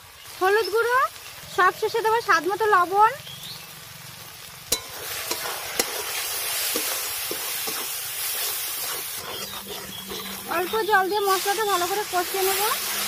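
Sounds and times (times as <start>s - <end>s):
masala sizzling: 0.0s - 13.0s
metal spatula knocking and scraping: 4.7s - 6.1s, 6.7s - 11.4s.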